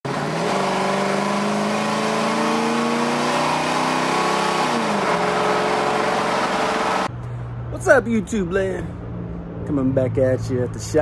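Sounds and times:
vehicle engine accelerating: 0.1 - 7.7.

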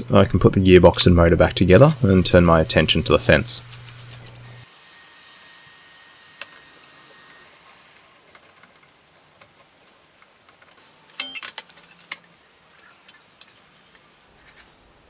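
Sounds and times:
metal clinks: 11.2 - 11.5.

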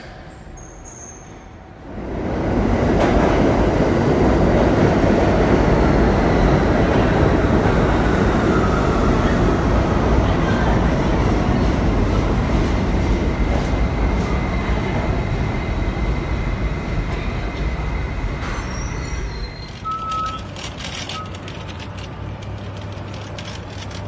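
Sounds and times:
street sound: 0.0 - 24.0
subway train wheels rumbling: 0.0 - 24.0
short beeps: 19.8 - 20.5.

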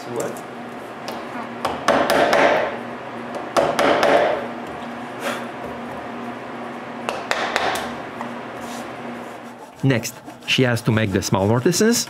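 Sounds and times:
wooden mallet striking chisel: 1.6 - 2.7, 3.6 - 4.4, 7.1 - 7.8.

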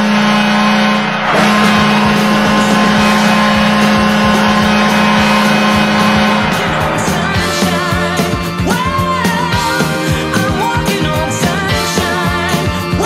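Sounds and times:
goal horn blasts: 0.0 - 7.6.

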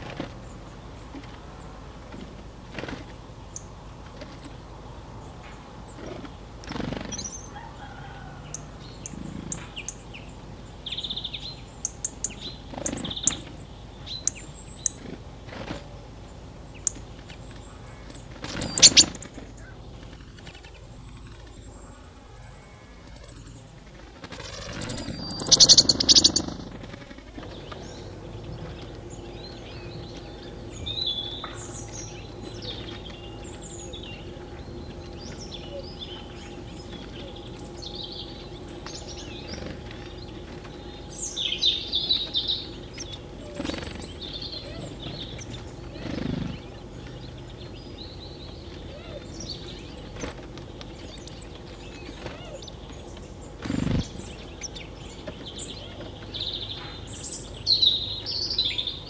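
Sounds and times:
faint steady hum: 0.0 - 59.0
small birds chirping: 0.0 - 59.0.

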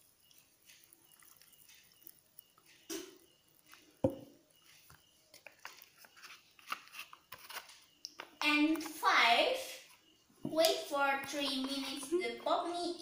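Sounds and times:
water trickling and dripping: 0.0 - 5.8.

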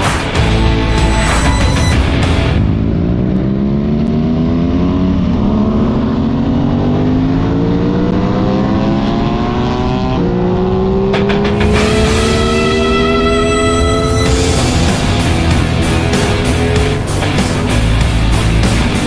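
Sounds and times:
motorcycle engine accelerating: 0.4 - 19.0.

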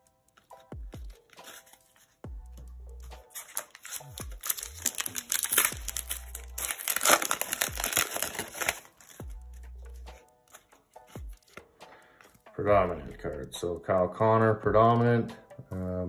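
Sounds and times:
foil wrapper crinkling and tearing: 3.2 - 9.3.

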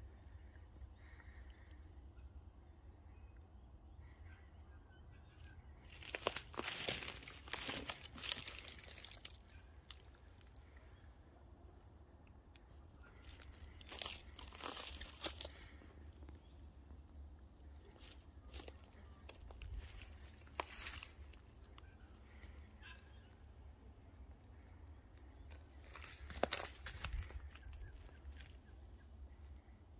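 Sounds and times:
footsteps crunching dry leaves: 5.8 - 10.1, 13.2 - 15.8, 18.0 - 22.5, 25.5 - 28.6.

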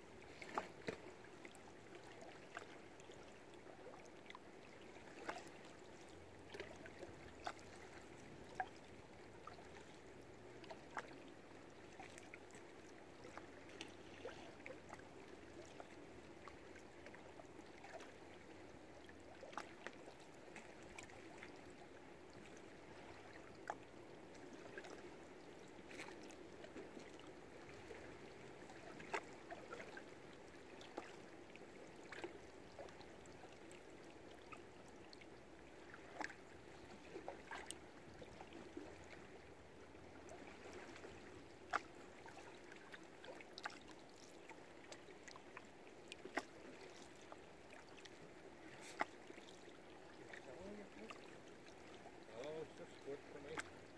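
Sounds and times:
lake water lapping against boats: 0.0 - 53.9.

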